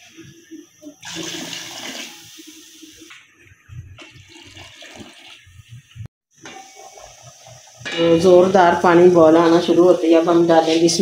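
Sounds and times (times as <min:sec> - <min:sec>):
water pouring into a pot: 0:01.0 - 0:02.9, 0:04.0 - 0:05.4.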